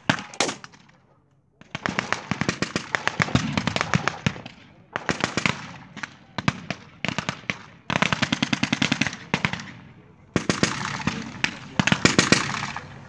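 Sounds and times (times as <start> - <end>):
automatic gunfire bursts: 0.1 - 0.8.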